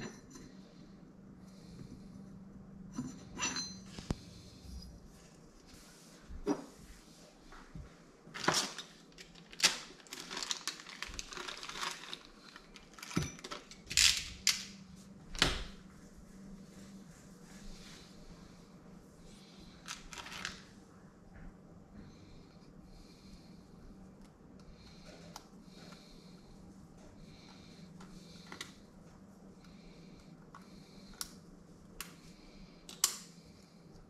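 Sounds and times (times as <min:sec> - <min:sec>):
metal parts clinking and scraping: 0:02.9 - 0:04.1, 0:08.4 - 0:14.8.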